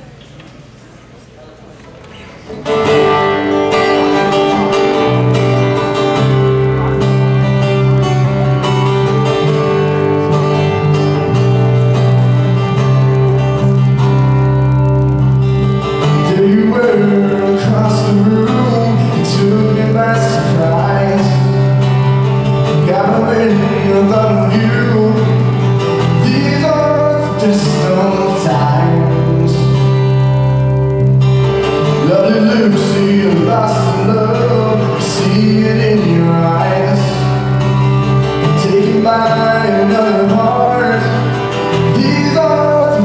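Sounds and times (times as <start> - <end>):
acoustic guitars strumming: 2.1 - 43.0
electric bass notes: 2.6 - 43.0
man singing: 16.0 - 21.8, 22.5 - 30.1, 31.9 - 43.0.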